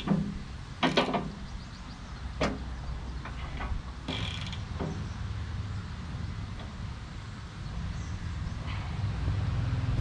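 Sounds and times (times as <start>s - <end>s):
sharp knocks: 0.0s - 1.4s
tractor diesel engine running: 0.0s - 10.0s.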